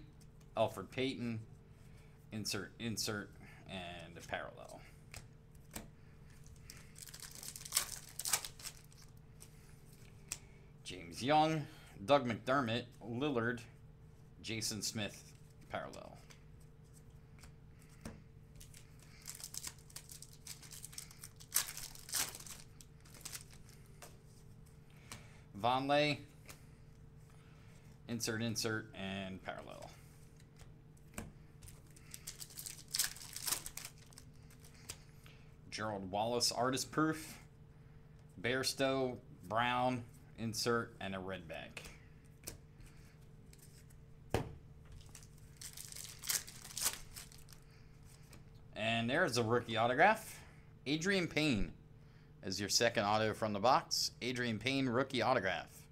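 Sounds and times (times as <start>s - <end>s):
wrapper crinkling being torn: 6.8s - 9.2s, 18.6s - 23.7s, 31.9s - 34.3s, 45.0s - 47.6s.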